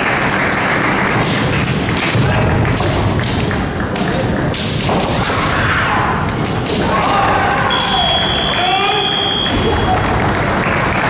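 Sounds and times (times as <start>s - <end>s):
busy hall voices: 0.0s - 11.0s
bamboo swords clashing: 1.1s - 9.8s.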